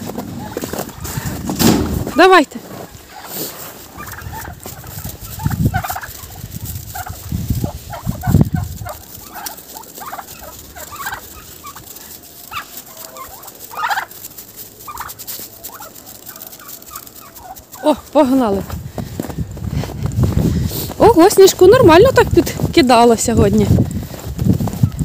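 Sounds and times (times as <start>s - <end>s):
turkeys calling: 0.2s - 18.7s.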